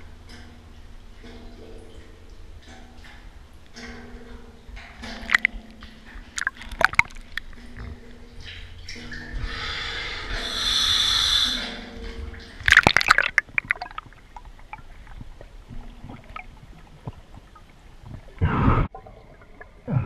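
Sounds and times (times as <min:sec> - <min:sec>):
hissing inhale through regulator: 0:09.5 - 0:11.8.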